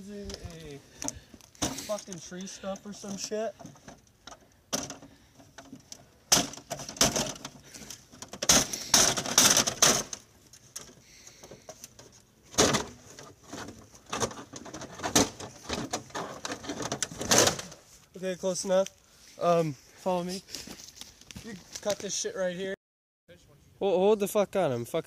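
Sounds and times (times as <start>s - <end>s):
dry leaves rustling underfoot: 17.7s - 22.1s.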